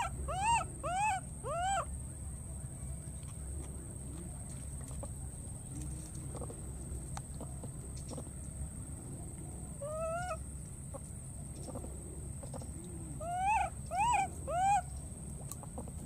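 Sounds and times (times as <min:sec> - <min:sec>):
baby monkey crying: 0:00.0 - 0:01.9, 0:09.8 - 0:10.4, 0:13.2 - 0:14.9.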